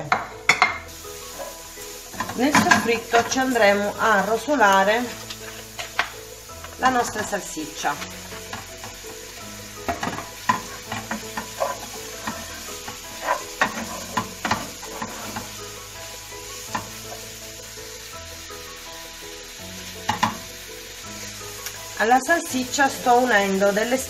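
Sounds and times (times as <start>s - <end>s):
sausages sizzling in a pan: 0.0s - 24.0s
wooden spoon scraping and knocking: 9.9s - 15.5s.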